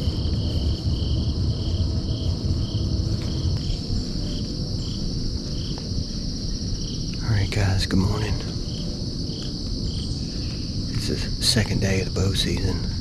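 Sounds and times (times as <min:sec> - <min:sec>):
crickets trilling: 0:00.0 - 0:13.0
low rumble: 0:00.0 - 0:13.0
lower pulsing insect call: 0:00.0 - 0:13.0.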